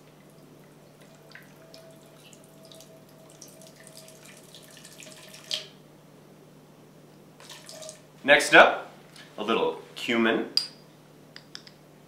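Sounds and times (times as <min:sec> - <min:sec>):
beer trickling into a pot: 0:00.2 - 0:05.8, 0:07.4 - 0:08.1.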